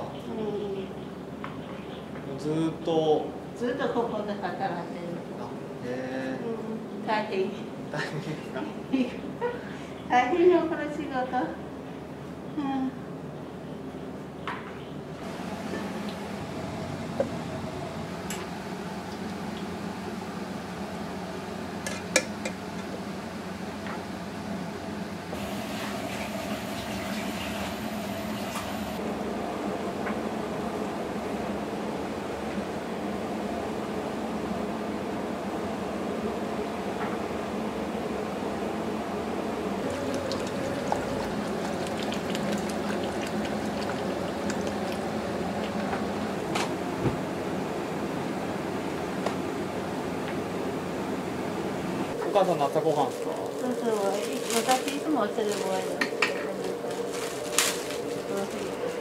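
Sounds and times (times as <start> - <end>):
kitchen hum: 15.2 - 33.7, 38.6 - 59.0
simmering bubbling: 39.8 - 46.5
sauce pouring into a pot: 39.9 - 45.9.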